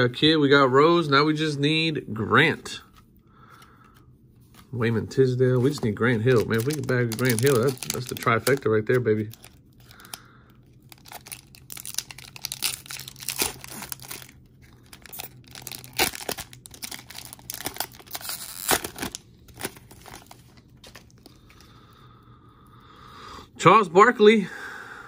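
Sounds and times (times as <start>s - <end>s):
foil wrapper crinkling and tearing: 5.6s - 21.4s.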